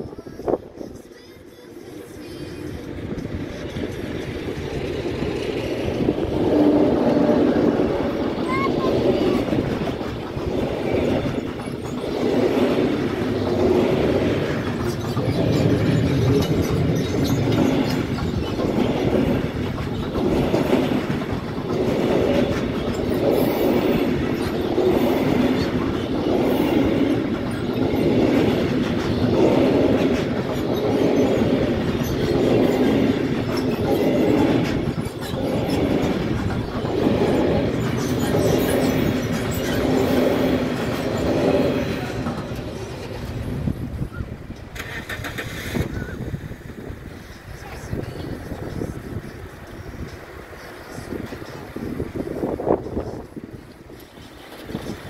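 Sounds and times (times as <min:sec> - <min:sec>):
freight train wagons rolling: 0:00.0 - 0:55.0.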